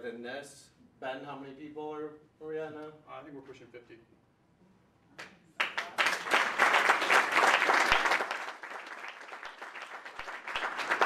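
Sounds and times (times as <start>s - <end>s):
audience applauding: 5.6s - 11.0s.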